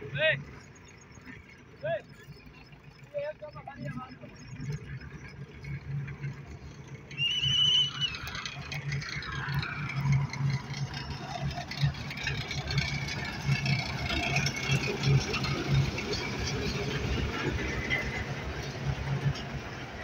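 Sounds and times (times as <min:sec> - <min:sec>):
diesel engines droning: 0:00.0 - 0:20.0.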